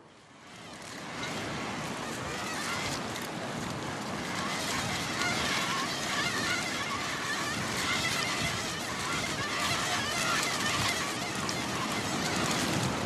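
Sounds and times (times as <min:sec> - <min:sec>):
surf: 0:00.0 - 0:13.0
wind: 0:00.0 - 0:13.0
wavering high squeaks: 0:00.8 - 0:13.0.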